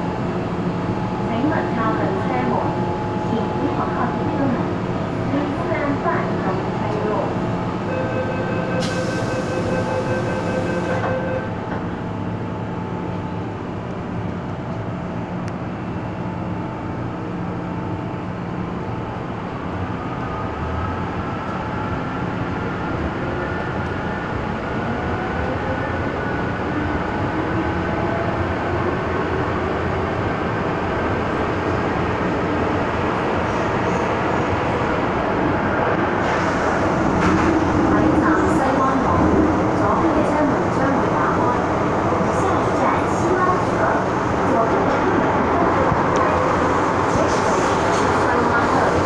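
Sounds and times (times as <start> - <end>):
train rumble: 0.0 - 49.0
train doors sliding shut: 8.8 - 11.9, 36.2 - 37.8.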